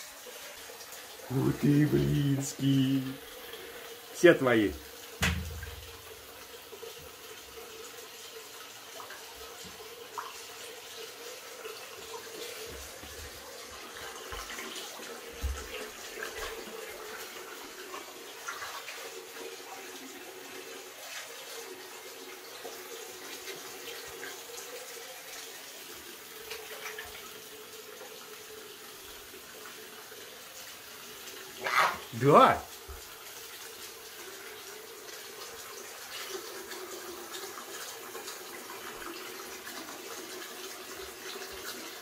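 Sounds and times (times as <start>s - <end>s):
shower water on tiled floor: 0.0s - 42.0s
soft thumps and splashes: 5.2s - 6.3s, 15.3s - 16.6s.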